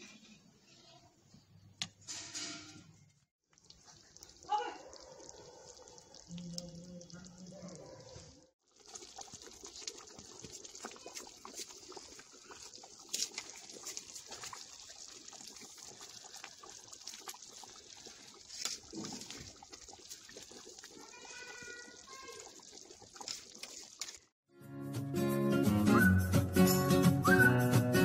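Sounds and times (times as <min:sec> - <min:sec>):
pot bubbling and hissing: 0:03.5 - 0:24.3
burning wood crackling: 0:08.8 - 0:21.6.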